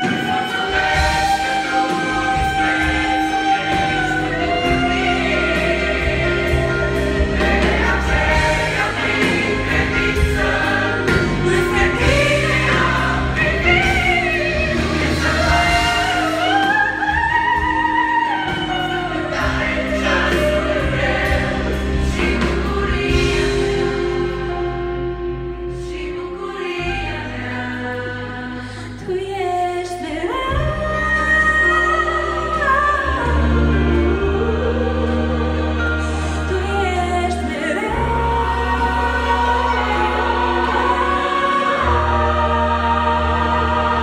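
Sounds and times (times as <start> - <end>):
band accompaniment: 0.0 - 44.0
choir singing worship song: 0.0 - 44.0.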